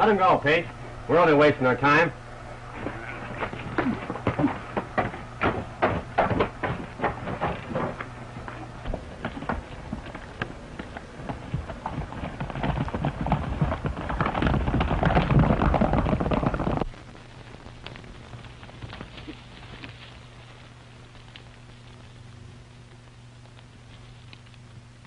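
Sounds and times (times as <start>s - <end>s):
film soundtrack hum and hiss: 0.0s - 25.0s
horse hooves on dirt: 2.8s - 16.9s, 17.8s - 21.6s.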